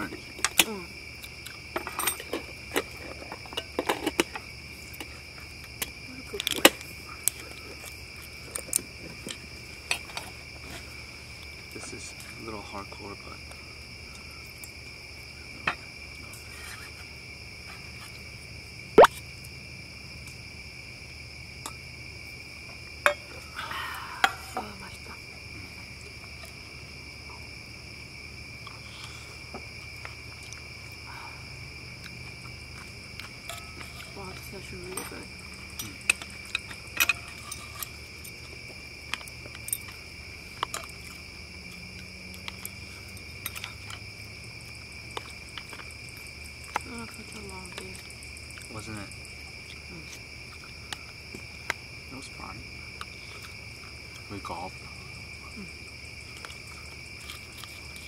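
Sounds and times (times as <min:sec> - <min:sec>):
night insects chorus: 0:00.0 - 0:58.0
utensils clinking on dishes: 0:34.9 - 0:37.9.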